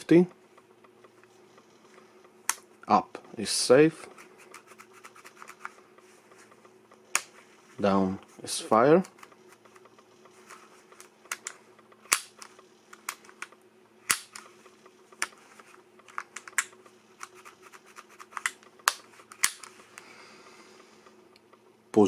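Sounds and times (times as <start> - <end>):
airsoft pistol mechanical clicks: 11.0 - 14.5.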